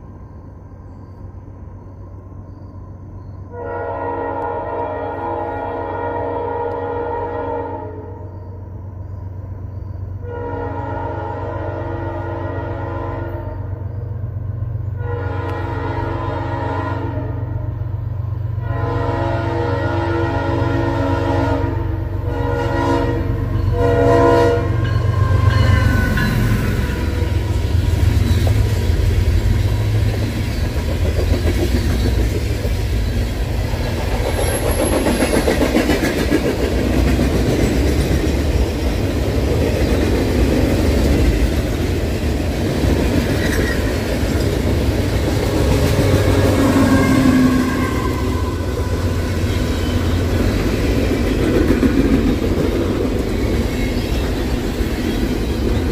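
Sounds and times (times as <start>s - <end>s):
locomotive air horn blasts: 3.5s - 8.2s, 10.2s - 13.8s, 15.0s - 17.8s, 18.6s - 27.5s, 45.4s - 49.6s
locomotive engine rumbling: 11.1s - 55.9s.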